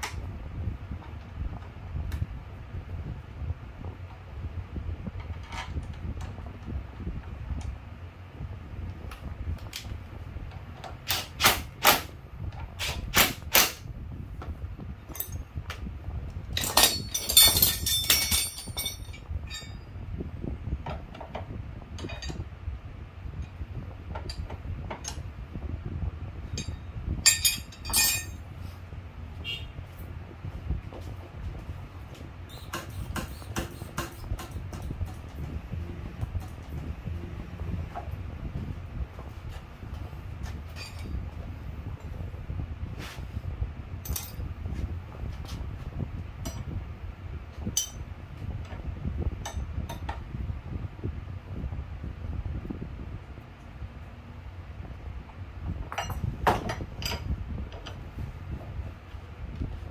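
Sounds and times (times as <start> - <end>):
steady low rumble: 0.0 - 59.9
metal tools clinking: 15.1 - 15.4, 16.6 - 19.9, 26.5 - 28.4, 40.7 - 41.2, 44.0 - 44.4
low rumble: 34.4 - 59.9.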